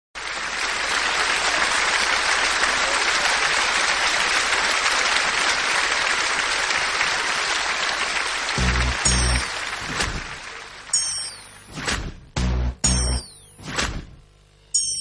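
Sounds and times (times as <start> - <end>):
audience applauding: 0.2 - 11.7
deep low thump: 11.9 - 13.2.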